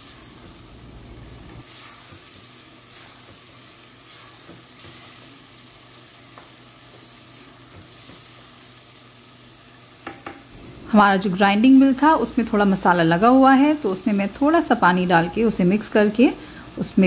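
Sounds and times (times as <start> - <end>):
chicken sizzling in a pot: 0.0 - 17.0.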